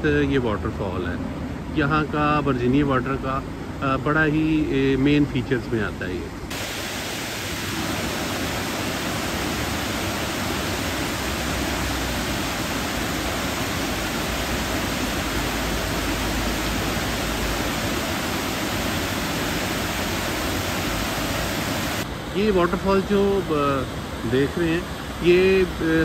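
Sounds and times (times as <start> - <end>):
water pouring down stone cascade: 6.5 - 22.0.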